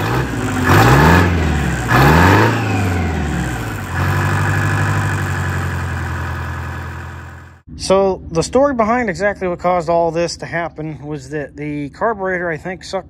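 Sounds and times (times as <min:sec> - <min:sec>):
engine revving: 0:00.0 - 0:07.6.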